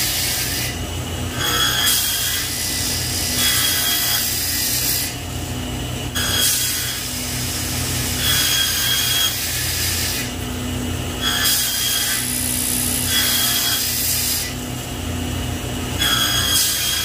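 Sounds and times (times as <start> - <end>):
saw blade cutting wood: 0.0 - 5.2, 6.1 - 10.4, 11.2 - 14.6, 16.0 - 17.0
table saw running: 0.0 - 17.0.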